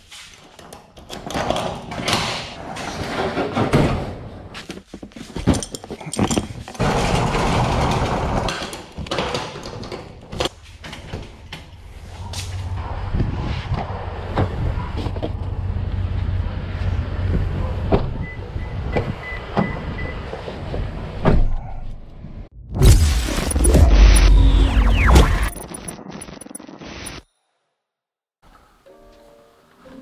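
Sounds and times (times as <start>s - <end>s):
metal rattle and clatter: 5.1s - 11.6s.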